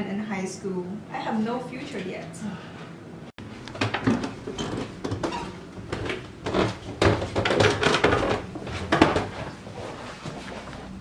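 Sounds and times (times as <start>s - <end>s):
footsteps thudding down stairs: 3.7s - 10.8s.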